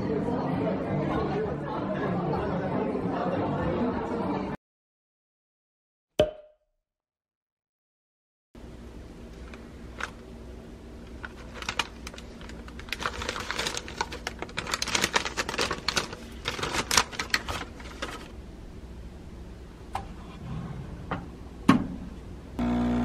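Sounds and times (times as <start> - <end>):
paper bag crinkling: 11.1 - 18.3.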